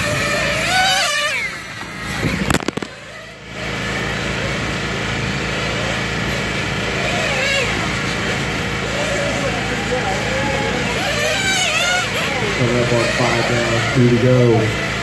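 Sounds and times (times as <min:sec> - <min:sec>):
rc cars engine whine: 0:00.0 - 0:15.0
camera handling knocks: 0:02.4 - 0:02.9.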